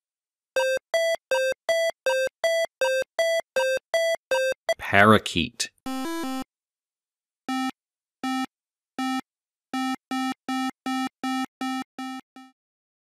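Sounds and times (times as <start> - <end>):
synthesized eight-bit beeps: 5.9 - 6.4.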